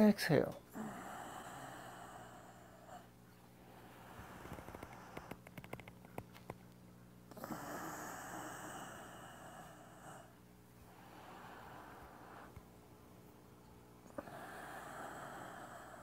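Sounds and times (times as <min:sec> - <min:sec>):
faint clicks: 0:04.4 - 0:06.8
person breathing out: 0:14.2 - 0:16.0.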